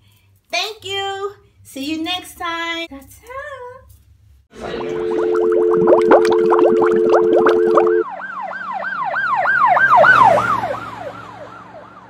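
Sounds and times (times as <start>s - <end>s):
held electronic chord: 4.6s - 8.0s
warbling pitch sweeps: 4.6s - 8.0s.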